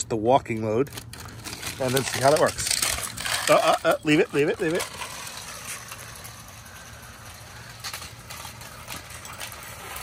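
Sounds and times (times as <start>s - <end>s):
toy electric motor and gears: 0.6s - 10.0s.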